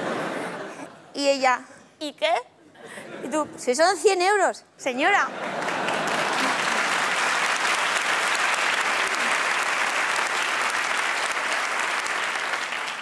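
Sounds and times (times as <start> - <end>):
theatre audience applauding: 5.4 - 13.0.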